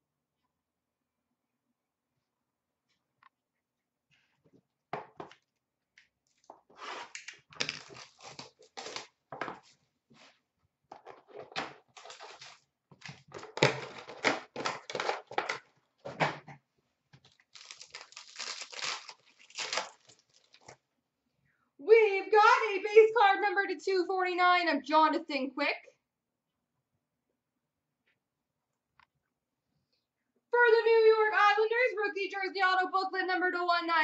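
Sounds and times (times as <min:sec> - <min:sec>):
foil wrapper tearing and crinkling: 0:07.2 - 0:09.2, 0:12.0 - 0:15.6, 0:17.2 - 0:20.8.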